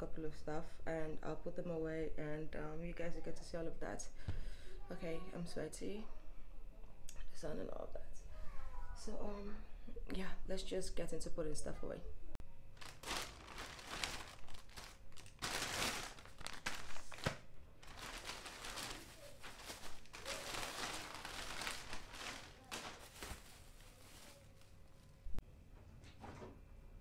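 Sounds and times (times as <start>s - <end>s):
plastic bags rustling: 12.8s - 25.3s.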